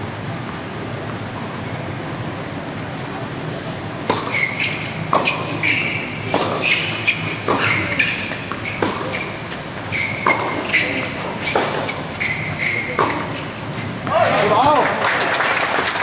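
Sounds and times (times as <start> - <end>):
racket striking tennis ball: 4.0 - 13.5
sneakers squeaking on court: 4.0 - 14.8.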